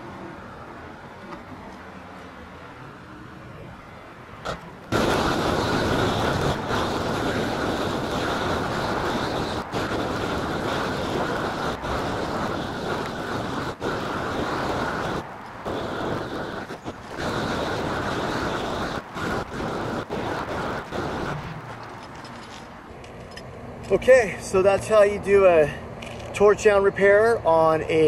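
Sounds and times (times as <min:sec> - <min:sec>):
roofing torch flame rushing: 0:04.4 - 0:22.3.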